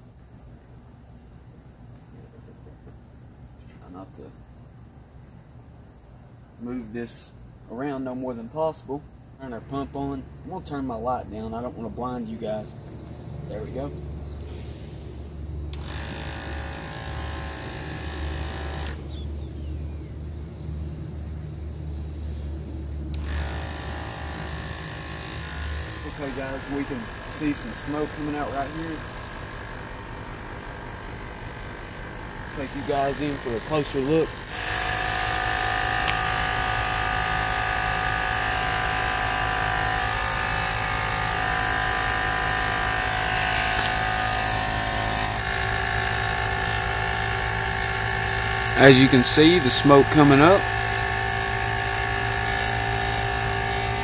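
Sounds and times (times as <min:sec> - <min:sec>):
air compressor humming: 0:06.5 - 0:21.0, 0:22.8 - 0:54.0
bright buzz: 0:15.6 - 0:20.3, 0:23.0 - 0:54.0.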